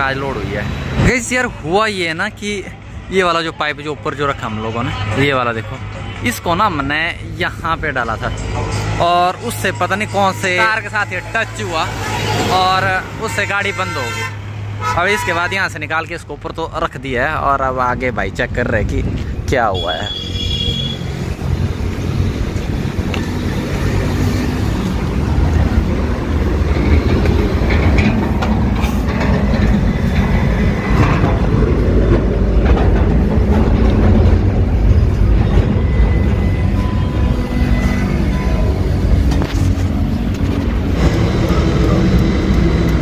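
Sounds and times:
road traffic rumble: 0:00.0 - 0:43.0
knocks and clatter: 0:26.0 - 0:36.9, 0:39.1 - 0:43.0.

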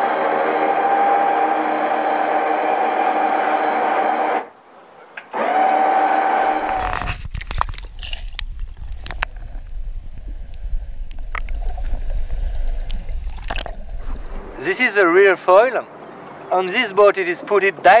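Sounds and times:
small electric motor whining: 0:05.3 - 0:07.2
muffled underwater rumble: 0:06.6 - 0:14.6
underwater clicks: 0:06.6 - 0:14.6
bubbly pops: 0:07.4 - 0:14.2.

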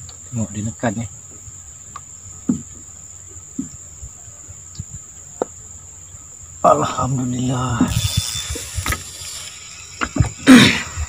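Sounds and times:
insects chirring: 0:00.0 - 0:11.0
man speaking: 0:06.6 - 0:08.0.

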